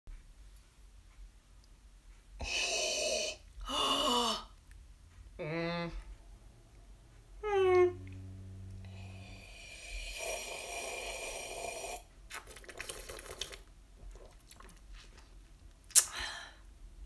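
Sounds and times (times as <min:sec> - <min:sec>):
person sipping: 0:02.4 - 0:04.4, 0:08.9 - 0:15.3
low hummed note: 0:05.4 - 0:09.8
gulping and swallowing: 0:12.3 - 0:14.9.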